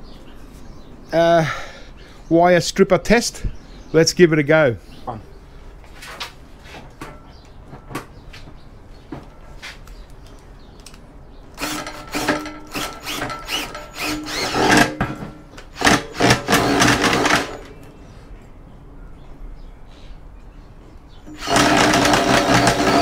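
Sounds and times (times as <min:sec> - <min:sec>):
cordless drill bursts: 0:11.6 - 0:15.0, 0:15.7 - 0:17.8, 0:21.3 - 0:23.0.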